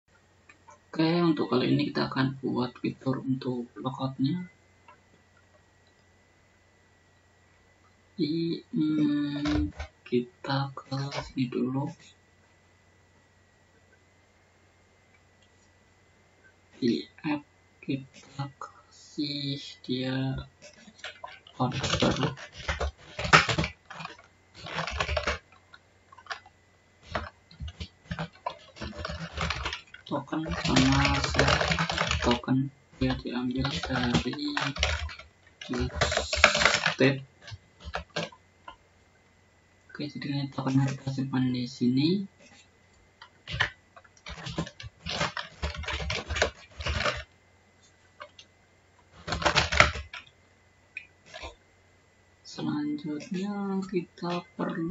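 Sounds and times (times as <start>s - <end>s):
typing on computer keyboard: 9.0s - 9.9s, 20.6s - 38.8s, 43.4s - 47.3s, 49.2s - 50.3s.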